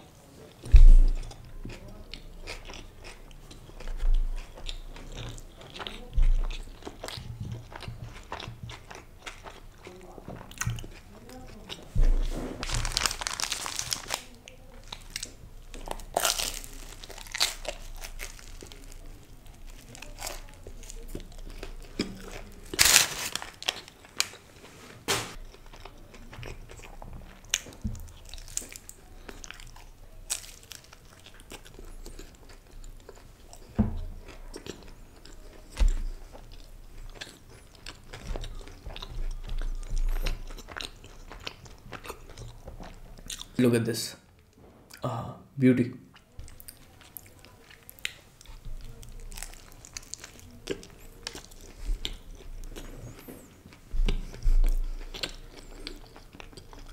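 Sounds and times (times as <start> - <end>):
chewing: 0.4 - 12.0, 12.6 - 24.7, 25.3 - 43.6, 46.1 - 56.9
crunchy food being bitten: 12.6 - 24.5, 25.3 - 43.6, 46.1 - 56.9.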